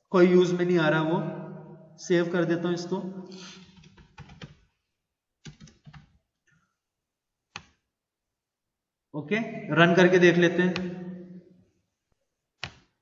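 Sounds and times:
keyboard keys tapping: 0:03.8 - 0:04.7, 0:05.4 - 0:06.2, 0:12.6 - 0:13.0.

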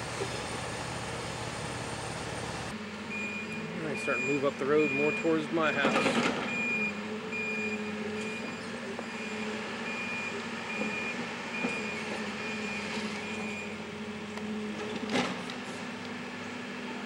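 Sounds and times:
diesel engine running: 0:00.0 - 0:17.0
backup alarm beeping: 0:03.1 - 0:08.5.

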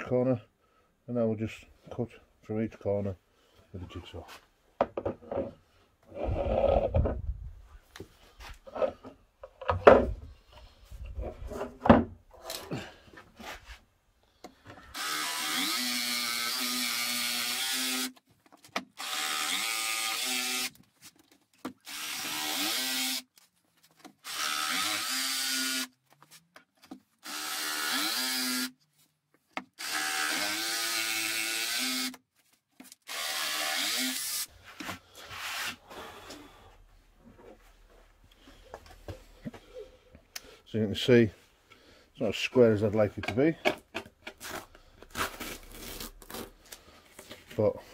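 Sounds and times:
knocks and handling sounds: 0:03.6 - 0:06.1, 0:06.8 - 0:14.9, 0:18.2 - 0:19.0, 0:20.7 - 0:21.8, 0:23.3 - 0:24.2, 0:26.0 - 0:27.2, 0:28.8 - 0:29.8, 0:32.2 - 0:33.1, 0:34.6 - 0:40.4, 0:42.8 - 0:45.7, 0:46.4 - 0:47.9
jigsaw cutting board: 0:27.2 - 0:28.7, 0:29.8 - 0:32.2.

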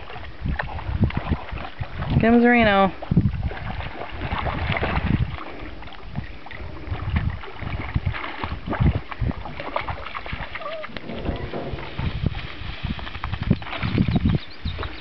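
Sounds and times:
water lapping at shore: 0:00.0 - 0:15.0
wind rumbling on microphone: 0:00.0 - 0:15.0
small knocks: 0:10.9 - 0:13.4.

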